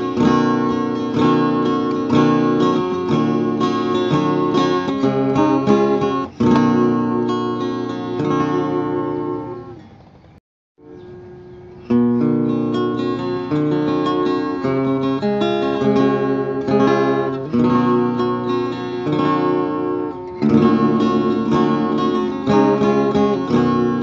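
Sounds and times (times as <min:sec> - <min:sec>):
acoustic guitar strumming: 0:00.0 - 0:24.0.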